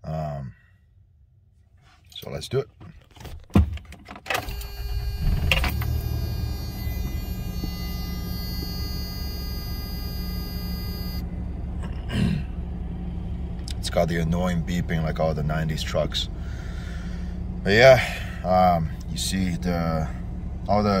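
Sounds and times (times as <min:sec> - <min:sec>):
engine cranking and idling: 0:02.9 - 0:21.0
electronic warning beep: 0:04.4 - 0:11.3.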